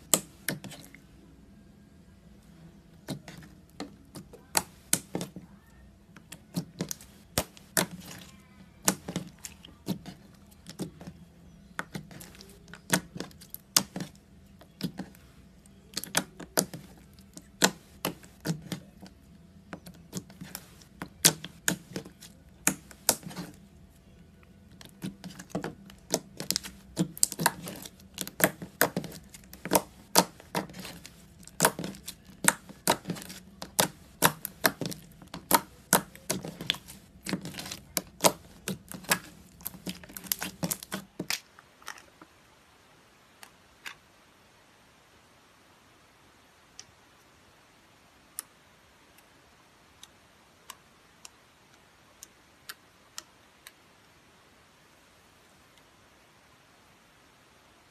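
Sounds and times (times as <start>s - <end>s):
slime squeezing and popping: 25.0s - 41.4s.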